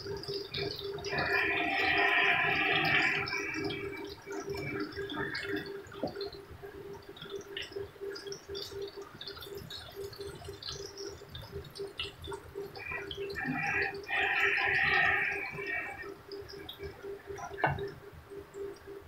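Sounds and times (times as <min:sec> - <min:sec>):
deep-frying in bubbling oil: 0:00.0 - 0:19.0.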